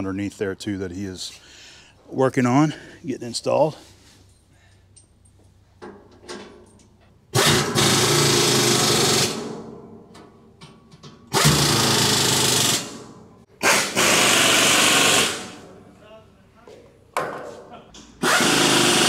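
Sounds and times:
impact wrench running: 0:07.3 - 0:09.7, 0:11.3 - 0:15.6, 0:18.2 - 0:19.0.

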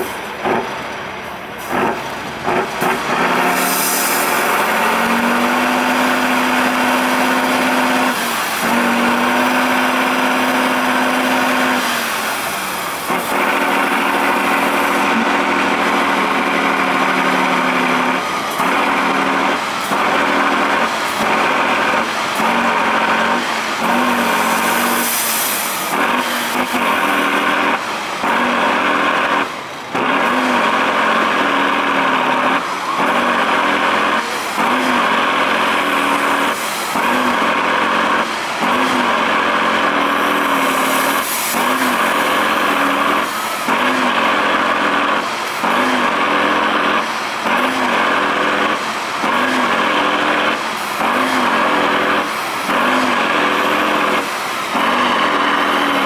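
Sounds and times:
truck diesel engine revving: 0:00.0 - 0:56.0.

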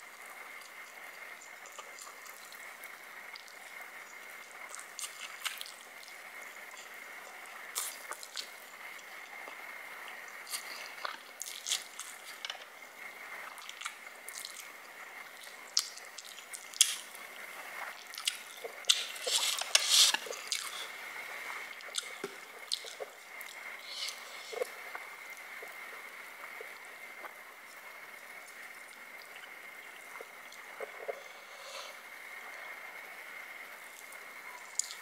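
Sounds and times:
person slurping noodles: 0:18.3 - 0:21.0, 0:23.8 - 0:24.8
wet mouth clicks and smacks: 0:21.8 - 0:24.7.

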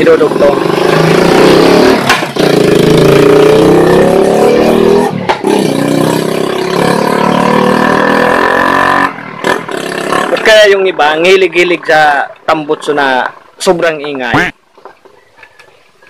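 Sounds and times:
loud motorcycle engine revving: 0:00.0 - 0:10.8.

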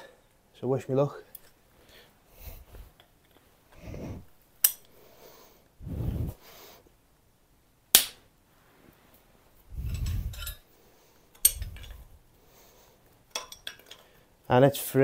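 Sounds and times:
sharp metallic cracks: 0:07.9 - 0:08.2
metallic rattle: 0:09.7 - 0:10.6, 0:11.4 - 0:12.1.

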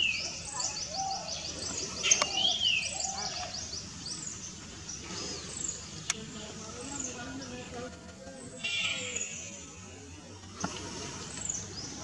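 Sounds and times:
birds whistling calls: 0:00.0 - 0:06.2.

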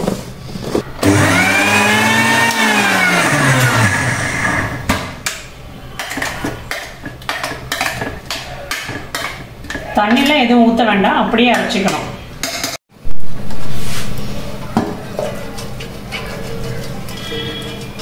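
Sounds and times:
mixer grinder motor: 0:01.0 - 0:04.9.

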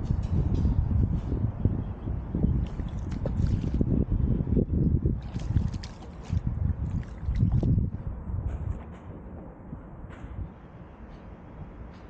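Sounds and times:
wind buffeting microphone: 0:00.0 - 0:12.0
water trickling and lapping: 0:02.4 - 0:08.0.

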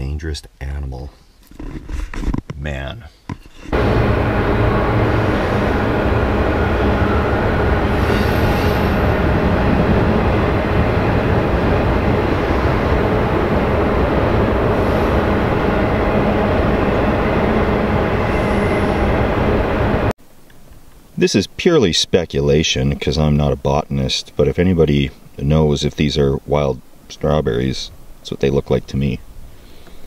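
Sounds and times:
car driving on gravel: 0:03.7 - 0:18.8.

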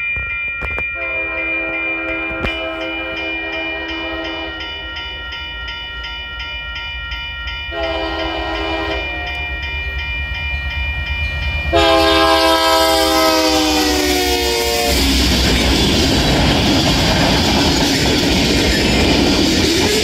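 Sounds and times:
crossing bell ringing: 0:00.0 - 0:20.0
locomotive horn blasts: 0:01.0 - 0:04.7, 0:07.7 - 0:09.4, 0:11.7 - 0:15.2.

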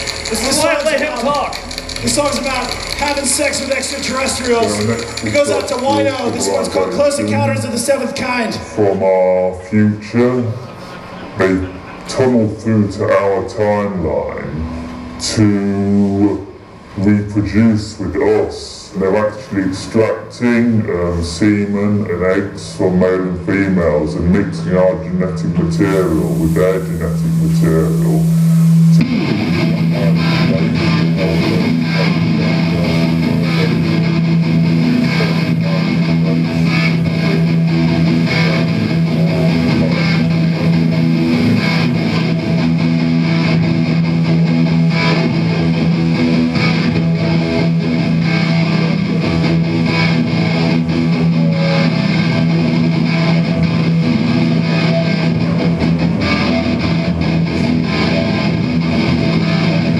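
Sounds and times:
electric guitar: 0:00.0 - 0:59.9
low droning note: 0:11.3 - 0:17.7, 0:25.8 - 0:57.9
live rock band: 0:26.0 - 0:59.9.

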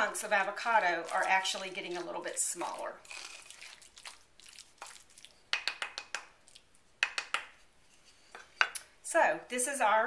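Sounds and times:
spoon mashing soft squishing: 0:00.1 - 0:08.0.

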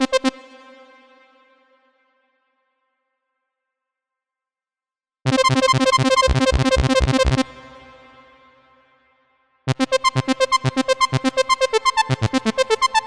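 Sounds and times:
synth arpeggio notes: 0:05.3 - 0:07.4, 0:09.7 - 0:13.0.

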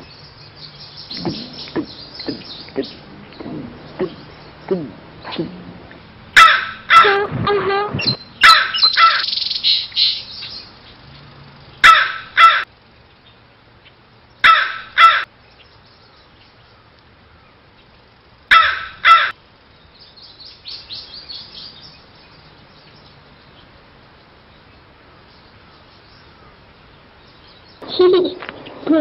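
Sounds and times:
crow cawing: 0:06.4 - 0:07.1, 0:08.4 - 0:09.3, 0:11.8 - 0:12.7, 0:14.4 - 0:15.3, 0:18.5 - 0:19.4.

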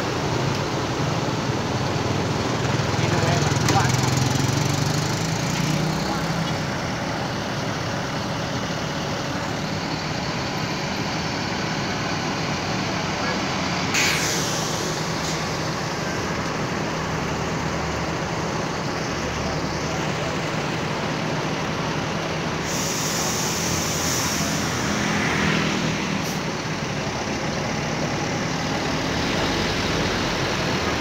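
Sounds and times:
traffic engines crawling past: 0:00.0 - 0:31.0
long hiss: 0:13.9 - 0:15.6, 0:22.6 - 0:25.0.

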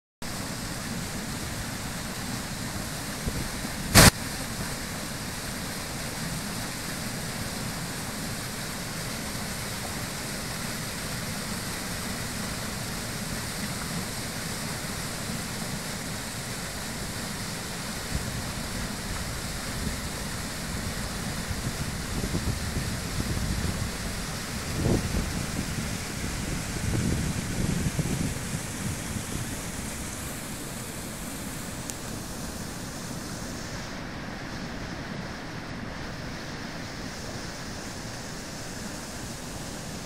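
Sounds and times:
water rushing over a spillway: 0:00.3 - 0:40.0
sharp click: 0:03.9 - 0:04.2.

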